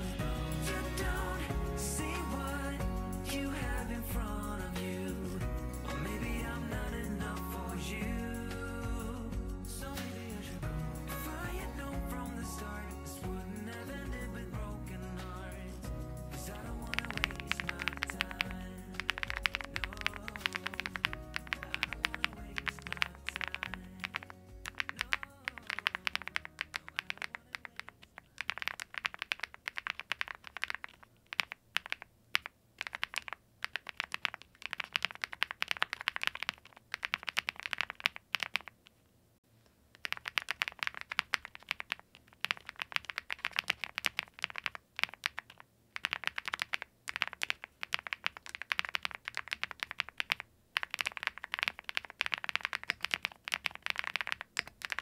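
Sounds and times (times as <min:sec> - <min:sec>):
mechanical keyboard typing: 0:16.4 - 0:38.8, 0:39.9 - 0:55.0.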